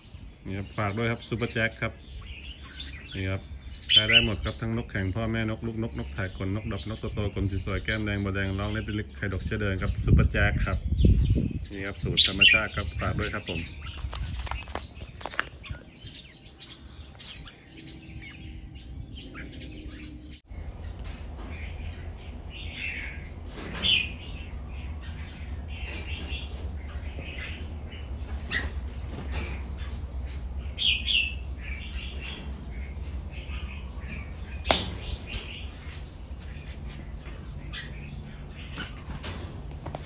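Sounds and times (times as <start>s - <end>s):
birds chirping: 0.0s - 40.0s
steady low hum: 15.6s - 40.0s.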